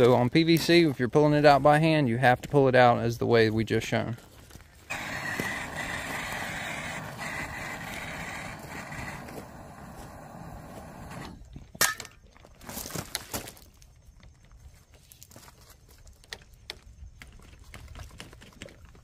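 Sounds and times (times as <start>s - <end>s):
shuffling on gravel: 0.0s - 11.5s, 12.4s - 19.0s
power tool hissing: 4.9s - 11.4s
tool clattering on gravel: 11.7s - 13.8s.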